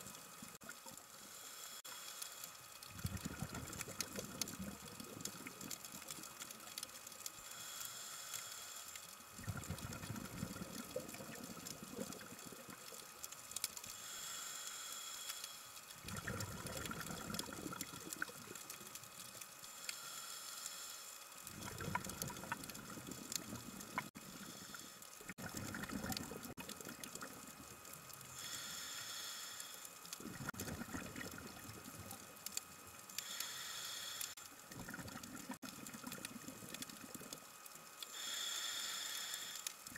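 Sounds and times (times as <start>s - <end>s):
exhaled bubbles gurgling: 2.9s - 6.7s, 9.3s - 13.2s, 16.0s - 19.0s, 21.5s - 24.6s, 25.2s - 28.1s, 30.2s - 32.5s, 34.6s - 37.6s
regulator hissing inhalation: 13.9s - 15.7s, 28.3s - 29.9s, 33.2s - 34.4s, 38.1s - 39.8s.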